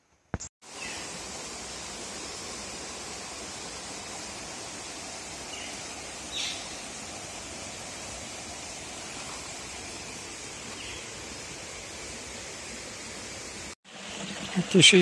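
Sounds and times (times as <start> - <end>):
forest background hiss: 0.0 - 15.0
high falling bird chirp: 5.4 - 7.0.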